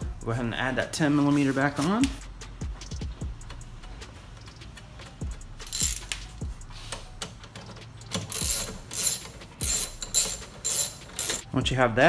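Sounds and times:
ratchet clicking: 5.3s - 6.5s, 7.2s - 11.4s.

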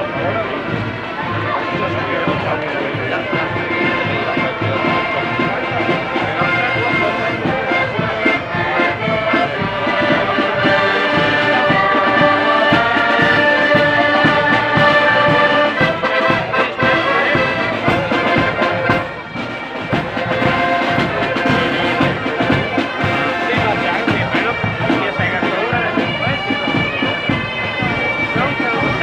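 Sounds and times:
accordion band playing: 0.0s - 29.0s
bass drum beat: 0.2s - 19.2s.

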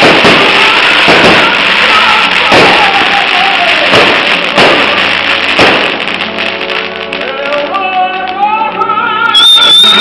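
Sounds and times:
crackling hiss: 0.0s - 10.0s
fireworks bangs: 0.0s - 10.0s
music with held notes: 3.2s - 9.3s.

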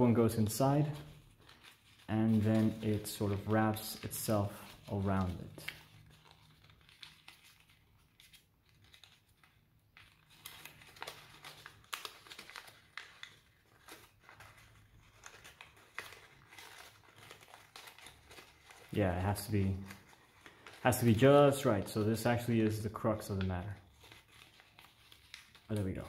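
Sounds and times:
paper crinkling: 0.0s - 26.0s.

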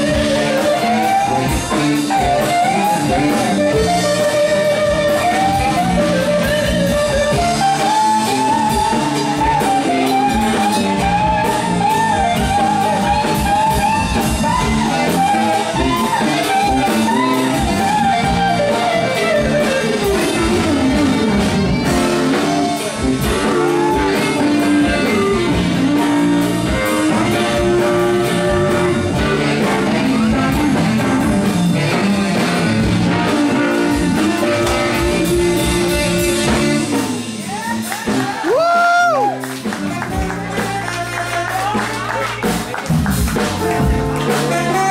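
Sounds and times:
lead electric guitar bending notes: 0.0s - 37.5s, 42.4s - 44.9s
funk rock band playing: 0.0s - 44.9s.

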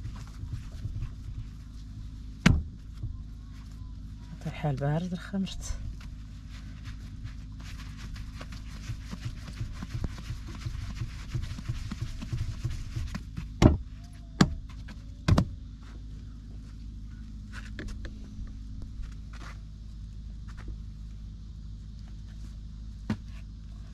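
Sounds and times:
steady low hum: 0.0s - 23.9s
hands patting bread dough: 5.9s - 13.8s.

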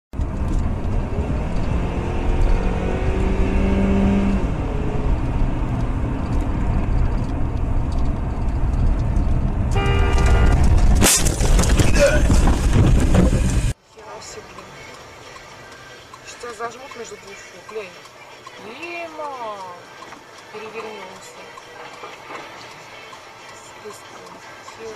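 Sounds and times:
car driving rumble: 0.1s - 18.4s
car horn: 9.6s - 11.0s.

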